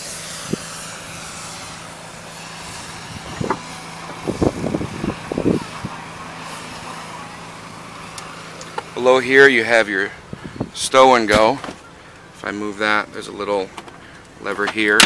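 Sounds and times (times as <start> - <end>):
liftgate motor humming: 0.0 - 9.5.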